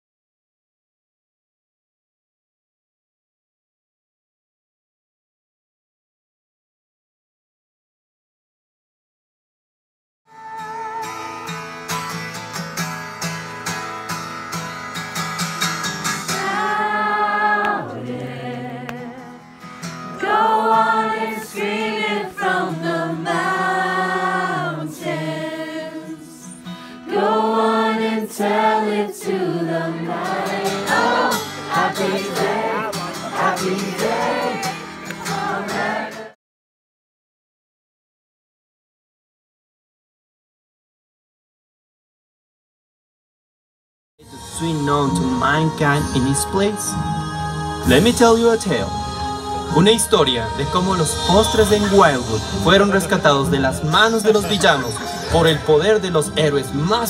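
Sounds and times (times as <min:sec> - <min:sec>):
group of voices singing: 0:16.2 - 0:36.4, 0:46.0 - 0:57.0.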